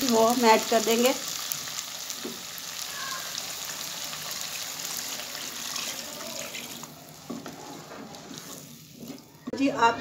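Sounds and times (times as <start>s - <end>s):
liquid pouring into pot: 4.5s - 9.3s.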